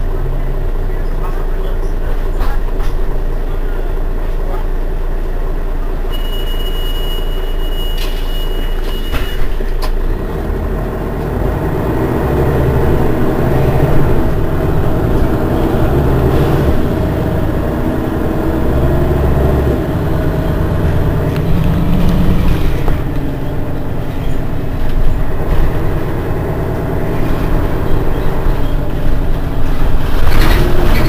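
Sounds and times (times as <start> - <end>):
bus engine running: 0.0 - 31.0
steady high beep: 6.1 - 9.4.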